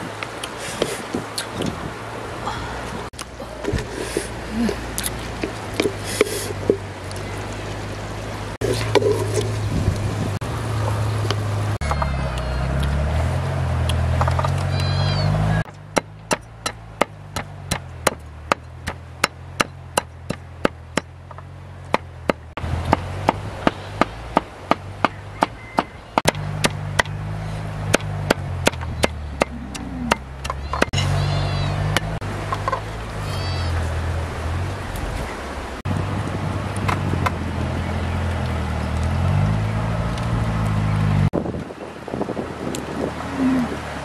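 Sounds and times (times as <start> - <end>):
sharp knocks: 27.9 - 31.0.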